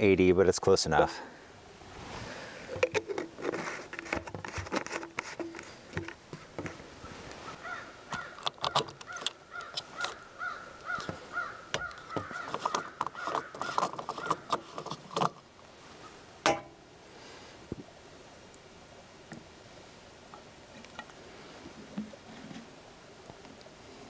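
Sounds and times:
fuel cap clicking: 2.7s - 6.8s, 8.1s - 10.2s, 11.7s - 15.4s.

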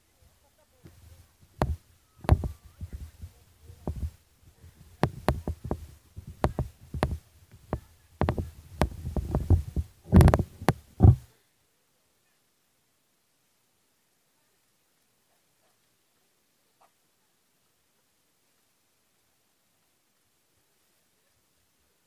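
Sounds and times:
thumps and clicks: 1.6s - 4.2s, 4.8s - 11.3s
low thud: 4.9s - 11.3s.

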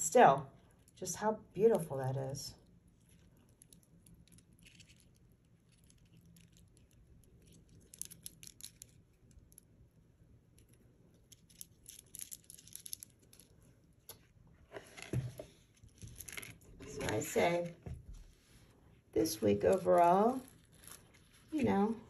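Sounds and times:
beads clicking together: 3.5s - 9.7s, 10.5s - 13.5s.

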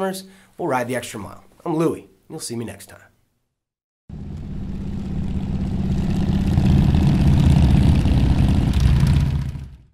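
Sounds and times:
engine deep pulsing rumble: 4.1s - 9.9s.

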